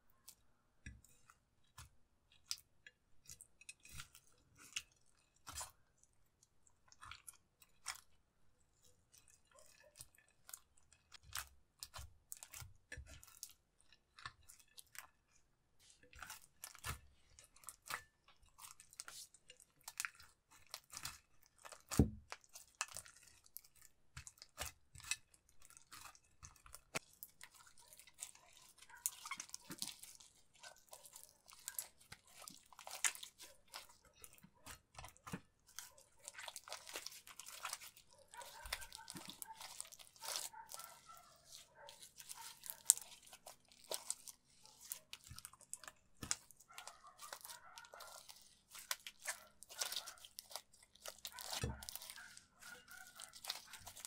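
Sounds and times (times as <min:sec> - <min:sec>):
slime squeezed by hand crackling: 0:35.7 - 0:54.0.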